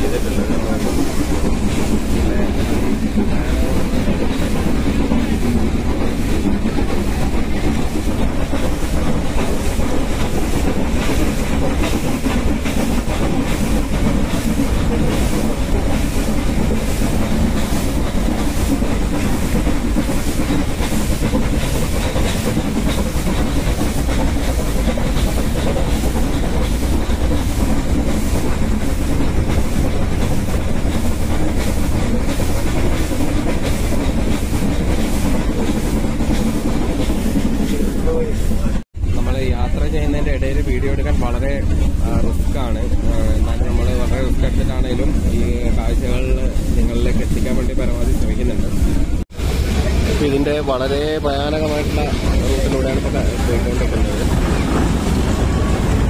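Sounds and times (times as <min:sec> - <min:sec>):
carriages rumbling and clattering: 0:00.0 - 0:56.0.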